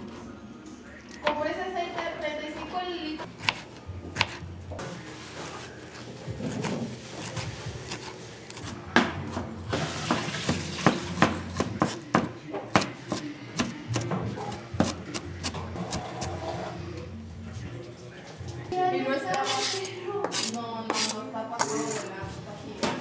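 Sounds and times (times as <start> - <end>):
knife slicing tomato: 3.4 - 4.4, 6.4 - 8.8, 19.3 - 22.1
knife chopping on plastic board: 10.1 - 16.1.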